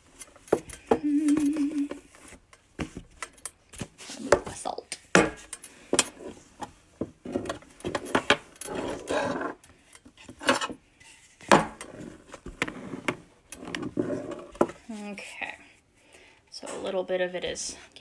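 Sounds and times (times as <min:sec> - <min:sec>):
rolling pin scraping dough: 0:05.4 - 0:09.6, 0:10.2 - 0:15.1.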